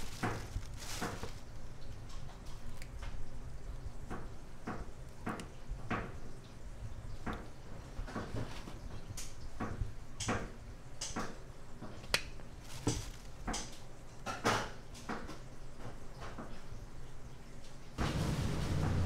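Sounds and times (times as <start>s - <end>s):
hands tapping plastic platter: 0.0s - 1.5s.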